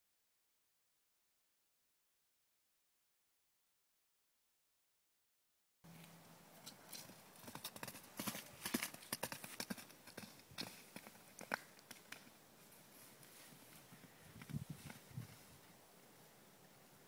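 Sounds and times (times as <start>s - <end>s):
hooves galloping on wet turf: 6.8s - 12.4s.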